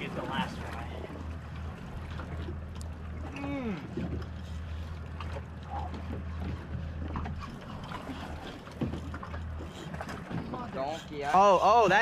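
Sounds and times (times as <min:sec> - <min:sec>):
boat engine idling: 0:00.0 - 0:12.0
water noise: 0:00.0 - 0:12.0
wind: 0:00.0 - 0:12.0.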